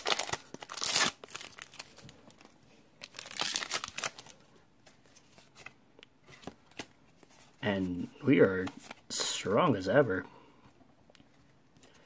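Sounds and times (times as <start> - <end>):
foil wrapper crinkling: 0.0 - 4.4.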